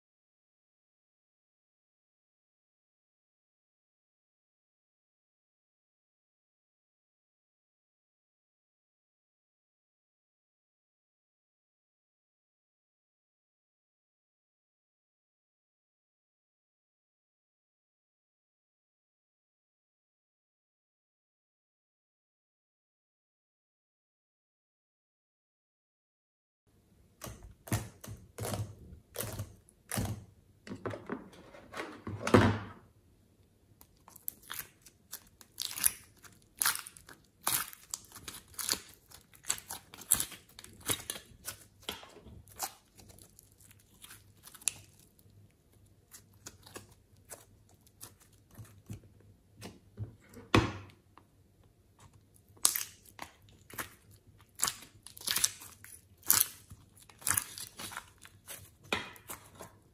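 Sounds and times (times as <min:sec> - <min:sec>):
hands squishing slime: 0:33.8 - 0:49.8, 0:52.0 - 0:59.9.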